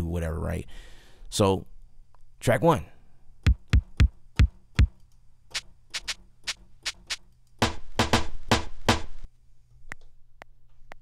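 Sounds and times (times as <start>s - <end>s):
electronic drum hits: 3.5s - 4.9s.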